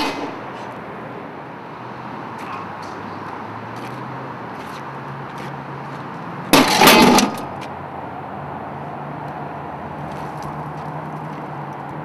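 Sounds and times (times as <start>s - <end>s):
loud crash: 0.0s - 0.5s, 6.5s - 7.5s.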